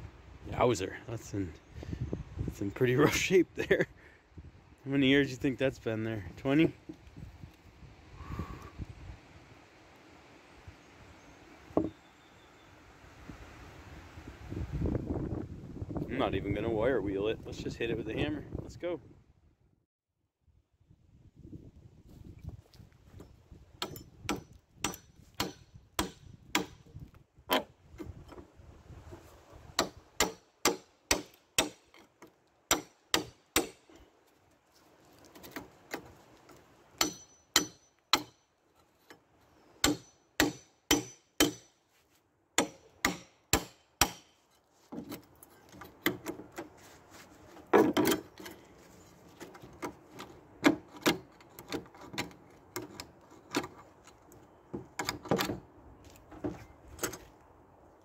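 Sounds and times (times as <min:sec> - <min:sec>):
metal scraping and knocking on wood: 0:11.8 - 0:12.0, 0:27.5 - 0:28.5, 0:42.6 - 0:57.3
hammer striking metal bar: 0:23.8 - 0:26.8, 0:29.8 - 0:31.9, 0:32.7 - 0:33.8, 0:37.0 - 0:38.4, 0:39.8 - 0:41.8, 0:42.6 - 0:44.4.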